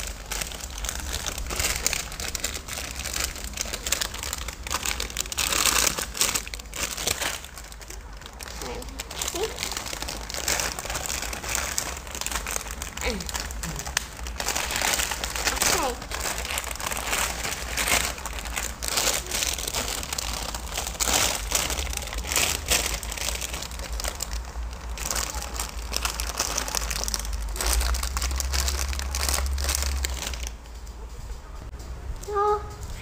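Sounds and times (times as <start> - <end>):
plastic packaging crinkling: 0.0 - 30.9.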